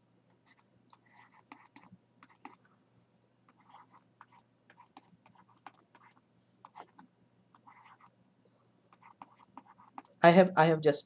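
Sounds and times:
stylus writing on a tablet: 0:00.3 - 0:02.6, 0:03.5 - 0:08.2, 0:08.9 - 0:10.2.

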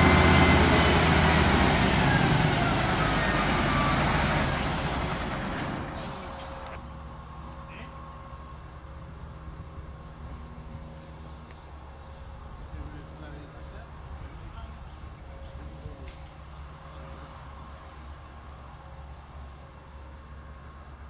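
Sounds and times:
crane diesel engine running: 0:00.0 - 0:12.0
brief hiss: 0:05.9 - 0:06.8.

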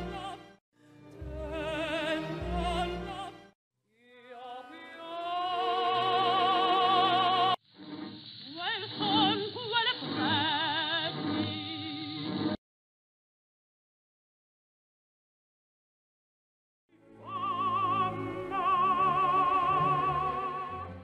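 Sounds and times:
orchestra: 0:00.0 - 0:03.6, 0:16.9 - 0:21.0
woman singing opera: 0:01.2 - 0:03.4, 0:04.0 - 0:07.6, 0:08.6 - 0:11.1, 0:17.2 - 0:21.0.

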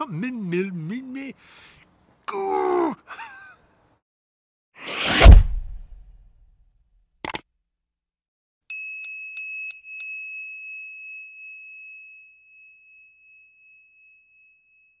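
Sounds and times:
bell dings: 0:08.7 - 0:15.0
high bell tone ringing: 0:08.7 - 0:15.0.

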